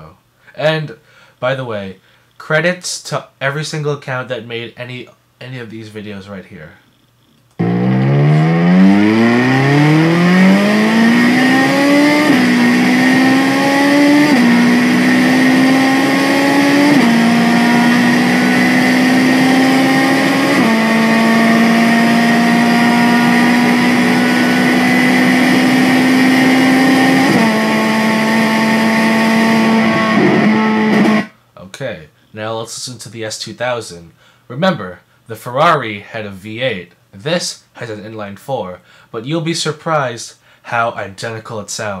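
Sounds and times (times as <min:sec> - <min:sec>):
gear upshifts: 0:07.5 - 0:31.3
sports car engine revving hard: 0:07.6 - 0:31.3.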